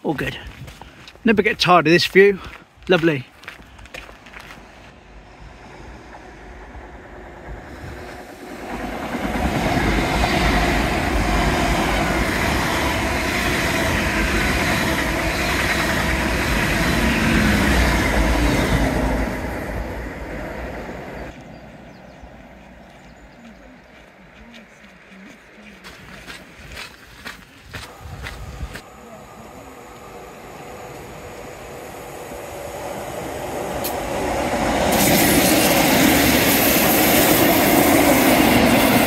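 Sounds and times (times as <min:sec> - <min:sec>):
train passing rumble: 0:00.0 - 0:26.9, 0:27.7 - 0:39.0.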